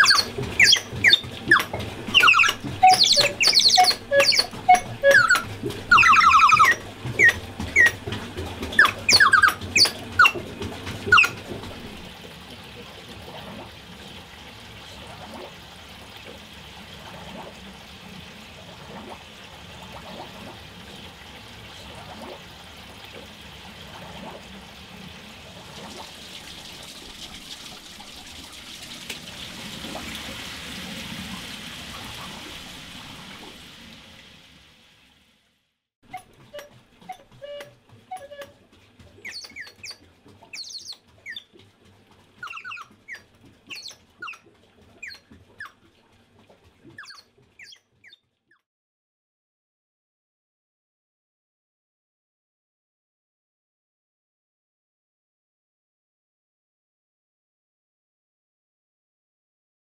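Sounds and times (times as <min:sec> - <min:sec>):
cuckoo clock pipe calls: 0:00.0 - 0:12.0, 0:36.1 - 0:38.6
water trickling over wheel: 0:00.0 - 0:48.4.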